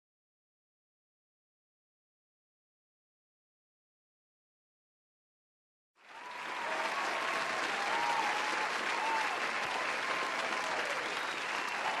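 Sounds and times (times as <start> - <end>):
audience applause: 6.0 - 12.0.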